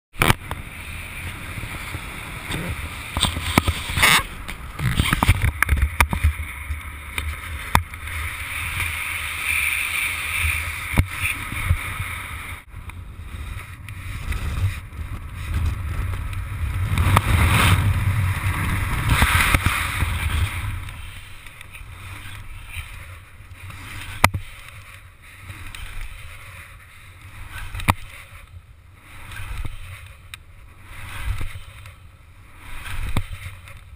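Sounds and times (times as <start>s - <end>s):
wind buffeting microphone: 10.2s - 24.6s.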